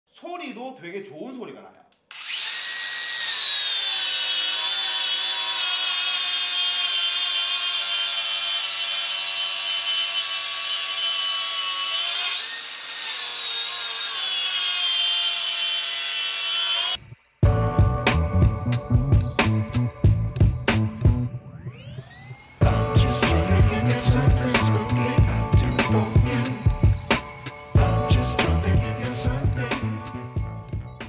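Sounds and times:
angle grinder grinding metal: 2.1 - 17.0, 22.6 - 30.3.

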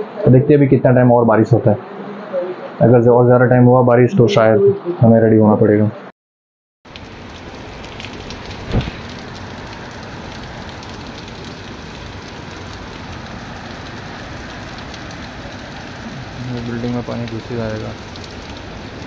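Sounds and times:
heavy rain on standing water: 6.9 - 19.0.

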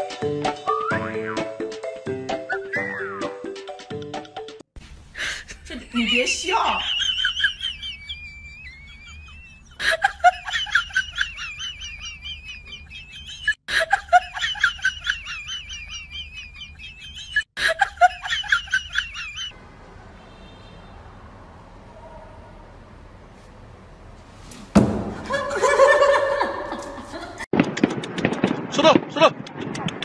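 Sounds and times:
high chirping warble: 6.7 - 9.8.

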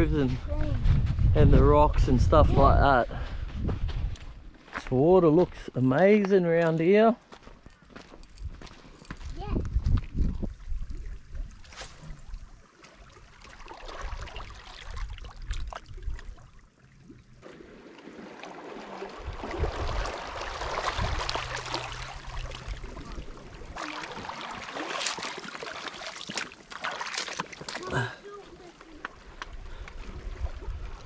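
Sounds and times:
wind rumble on microphone: 0.0 - 4.5, 8.2 - 11.7, 19.2 - 23.8, 29.5 - 31.0
seawater lapping among rocks: 9.7 - 31.0
foot splashing in water: 17.4 - 31.0.

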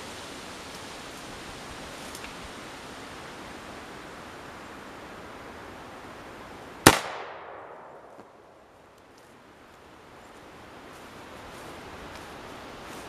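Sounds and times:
outdoor background hiss: 0.0 - 13.0
air rifle shot crack: 6.8 - 8.4.

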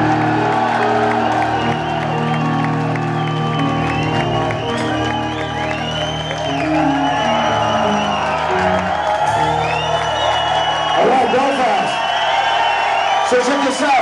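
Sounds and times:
live rock band playing: 0.0 - 11.8
crowd cheering and whistling: 0.0 - 14.0.

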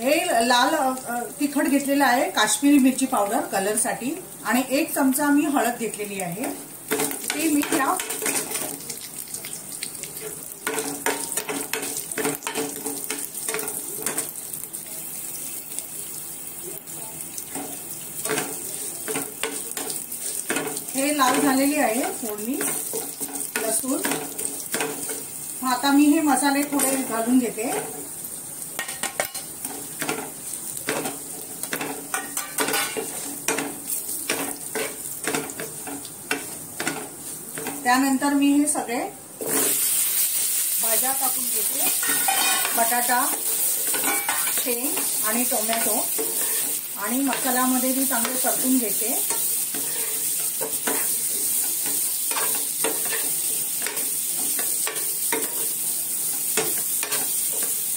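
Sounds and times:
spices sizzling in hot oil: 0.0 - 57.9
spoon stirring and scraping a pan: 6.4 - 14.7, 17.4 - 25.6, 26.6 - 38.0, 39.4 - 40.7, 41.8 - 57.9.

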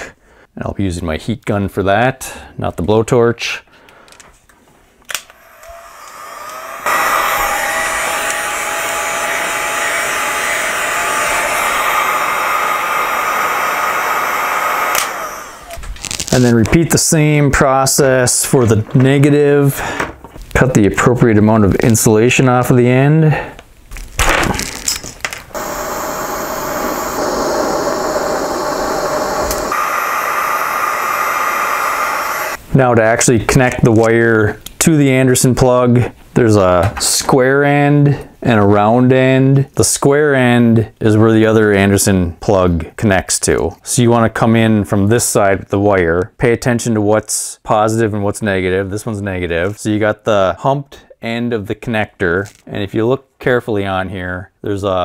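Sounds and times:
heat gun switch click: 5.1 - 6.8, 14.8 - 15.8
heat gun blowing air: 5.1 - 16.5, 25.5 - 32.6.

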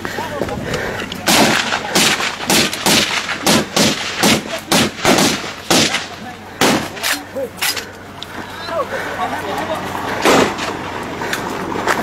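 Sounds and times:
single gunshots: 1.3 - 7.0, 10.2 - 10.6.

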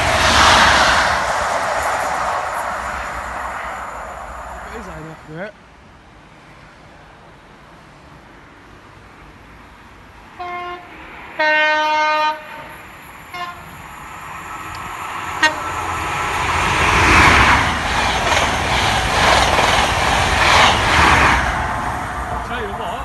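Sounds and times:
train passing at speed: 0.0 - 23.0
two-tone train horn: 10.4 - 13.7, 15.4 - 15.8.

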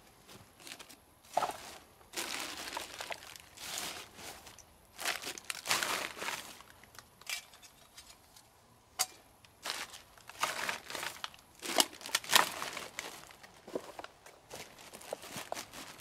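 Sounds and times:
plastic wrappers crinkling: 0.6 - 7.0, 9.6 - 16.0.

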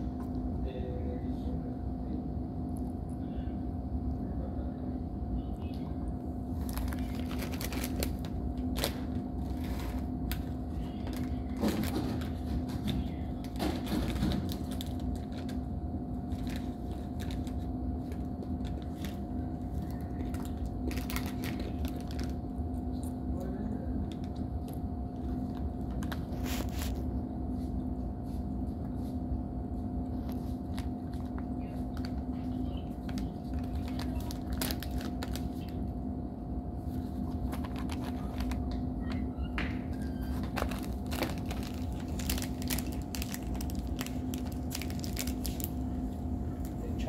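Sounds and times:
plastic packet crinkling: 6.6 - 12.4, 13.4 - 15.6, 16.2 - 22.4, 30.2 - 35.8, 37.3 - 38.8, 40.2 - 45.9.

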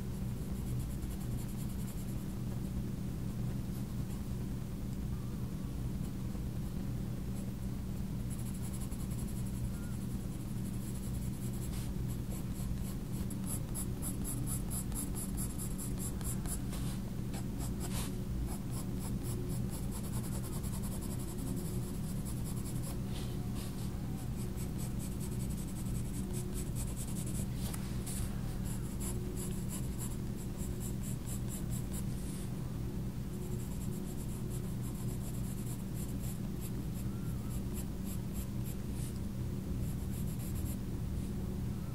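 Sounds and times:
steady low hum: 0.0 - 41.9
pencil scratching on paper: 10.7 - 16.7, 17.4 - 23.0.

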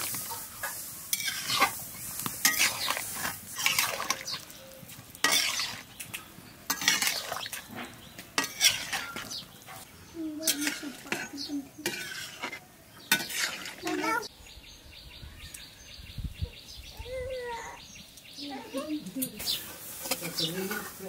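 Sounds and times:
metal ladle scraping a pan: 0.0 - 4.5, 5.2 - 6.1, 6.7 - 9.8, 10.4 - 14.3, 19.4 - 21.0.

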